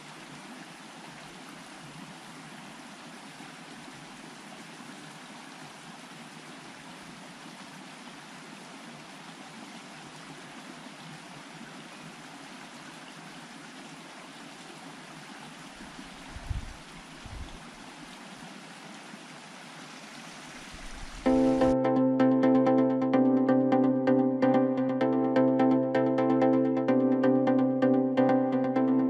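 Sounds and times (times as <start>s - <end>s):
stream flowing: 0.0s - 21.8s.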